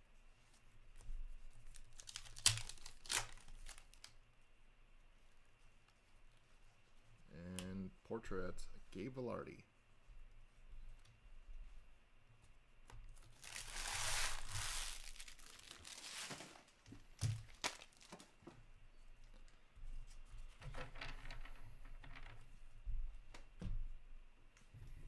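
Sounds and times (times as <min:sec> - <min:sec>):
wrapper tearing and crinkling: 0:01.7 - 0:04.2, 0:13.2 - 0:16.7, 0:17.3 - 0:18.3.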